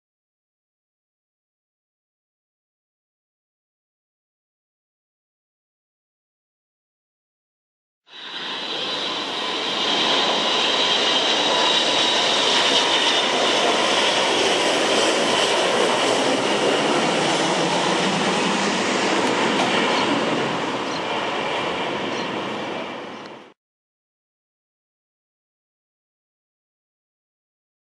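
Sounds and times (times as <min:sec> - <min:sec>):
jet plane roaring overhead: 0:08.1 - 0:23.6.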